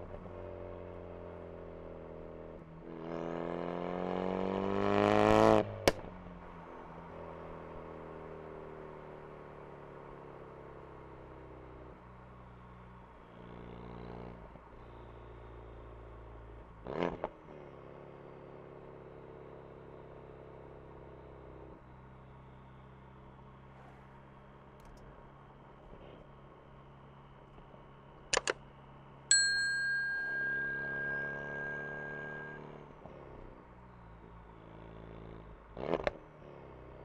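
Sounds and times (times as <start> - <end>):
car engine accelerating: 0.0 - 28.2, 28.8 - 37.0
car cruising engine note: 28.8 - 37.0.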